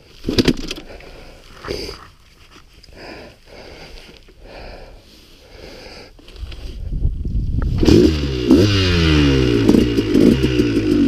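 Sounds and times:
person breathing hard: 0:00.7 - 0:02.2, 0:02.8 - 0:06.9.

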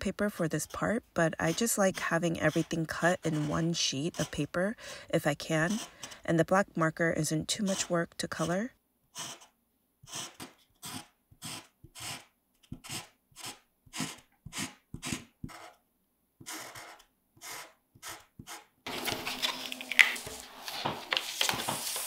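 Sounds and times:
marker scratching on cardstock: 0:00.5 - 0:04.7, 0:05.5 - 0:06.2, 0:07.6 - 0:15.8, 0:16.4 - 0:22.0
cardstock peeling off sticky mat: 0:18.9 - 0:22.0.

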